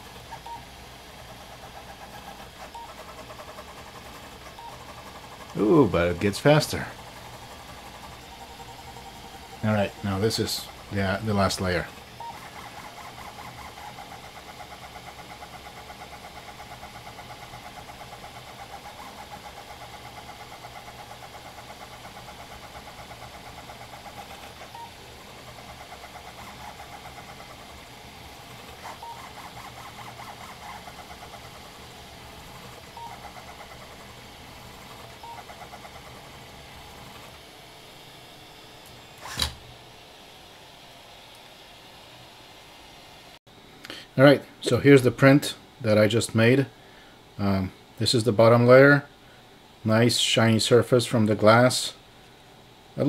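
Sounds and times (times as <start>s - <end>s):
stepper motors buzzing and whining: 0.0s - 41.7s.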